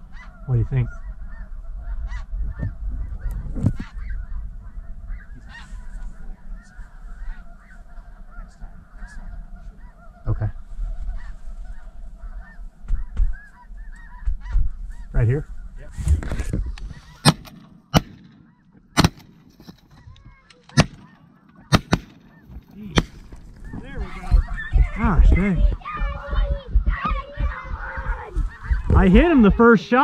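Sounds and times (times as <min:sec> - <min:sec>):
snow geese honking: 0:00.0 - 0:17.3, 0:17.9 - 0:18.8, 0:19.9 - 0:30.0
shotgun shots: 0:17.2 - 0:19.5, 0:20.7 - 0:23.3.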